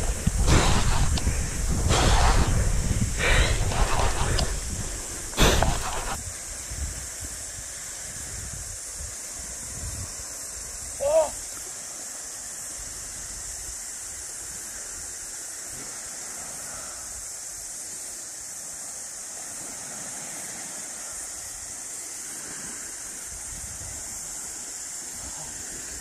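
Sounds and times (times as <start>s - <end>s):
wind gusting on microphone: 0.0s - 11.5s, 22.4s - 26.0s
small waves washing ashore: 0.0s - 26.0s.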